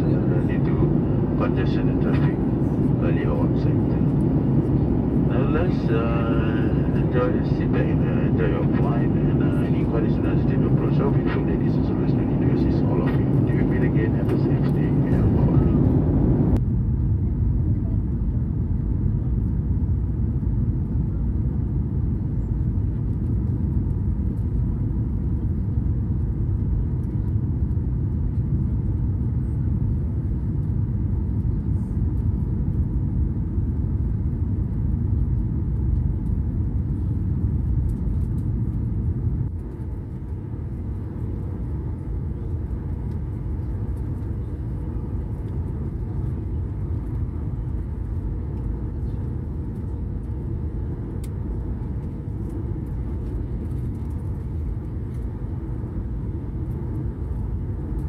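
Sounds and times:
jet engines rumbling in cabin: 0.0 - 58.0.

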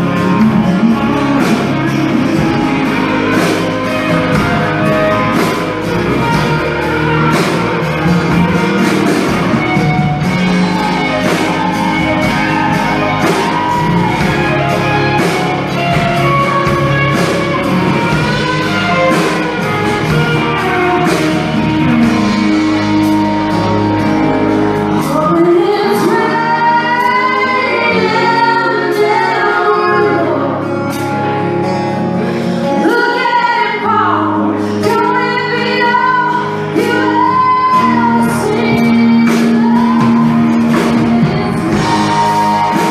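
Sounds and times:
electric guitar playing: 0.0 - 42.9
woman singing: 24.9 - 31.0, 32.6 - 42.9.

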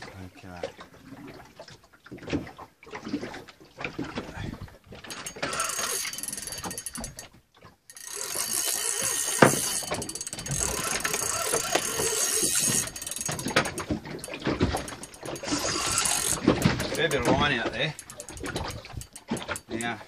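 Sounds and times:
fishing reel clicking and whirring: 5.0 - 20.0.

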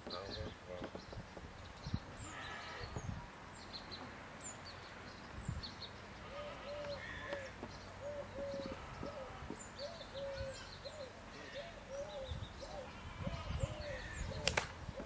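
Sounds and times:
bird cooing: 6.3 - 15.0
sharp crack: 14.4 - 14.8.

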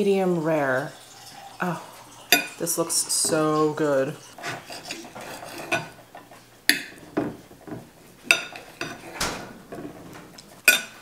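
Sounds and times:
knife scraping a plate: 3.2 - 9.2
cutlery clinking on a plate: 4.4 - 6.0, 10.6 - 11.0.

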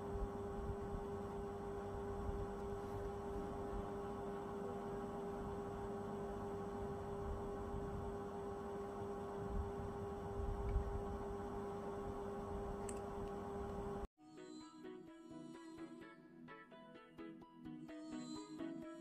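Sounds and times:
steady held hum: 0.0 - 14.1.

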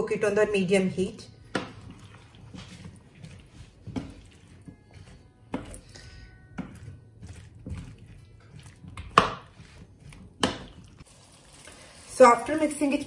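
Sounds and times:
spatula stirring vegetables in pan: 1.4 - 12.9
spatula knocking on pan: 6.5 - 11.0.

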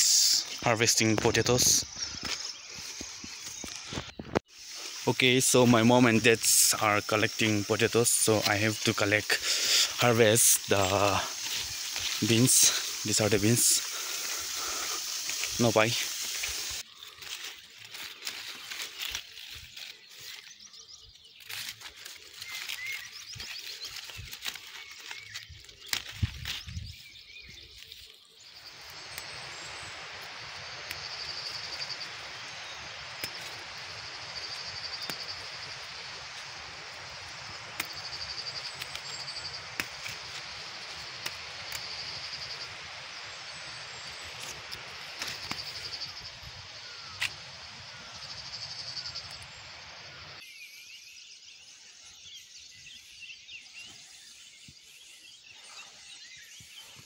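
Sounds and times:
insect buzz: 0.0 - 53.2
rustling leaves: 0.0 - 57.0
small clicks of beans picked: 21.4 - 26.7, 33.0 - 35.5, 37.7 - 42.6, 44.3 - 46.2.

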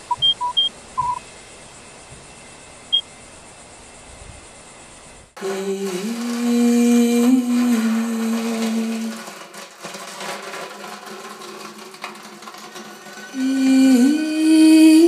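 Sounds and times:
faint noisy vocal sound: 5.4 - 9.2
woman singing long low note: 5.4 - 9.3, 13.4 - 15.0.

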